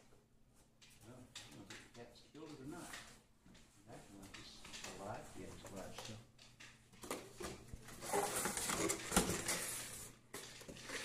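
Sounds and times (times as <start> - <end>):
cardboard scraping and rustling: 7.9 - 11.0.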